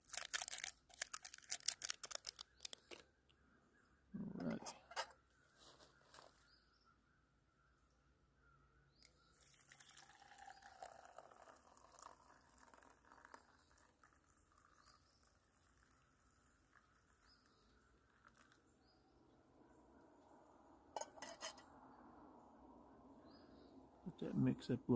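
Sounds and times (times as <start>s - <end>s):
water pouring into mug: 9.3s - 18.6s.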